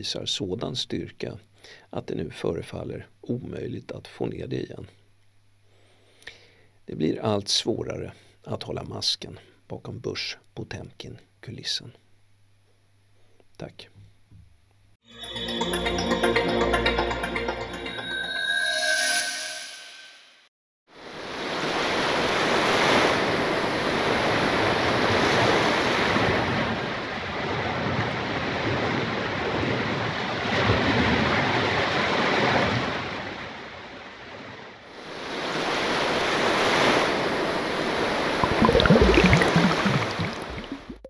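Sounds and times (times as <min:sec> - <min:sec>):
short rising tones: 0:15.1 - 0:20.4
ocean waves rolling: 0:21.0 - 0:33.5, 0:34.9 - 0:41.0.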